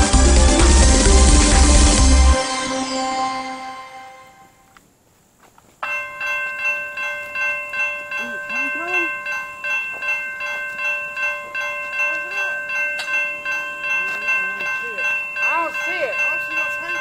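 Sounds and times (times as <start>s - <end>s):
crossing warning bell ringing: 5.8s - 17.0s.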